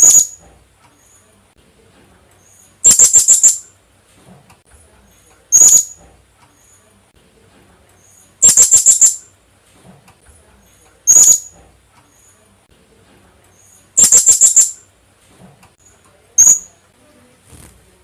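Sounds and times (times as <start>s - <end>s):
parrot calling in shrill notes: 0.0s - 0.4s, 2.8s - 3.6s, 5.5s - 6.0s, 8.4s - 9.2s, 11.1s - 11.5s, 14.0s - 14.8s, 16.4s - 16.7s.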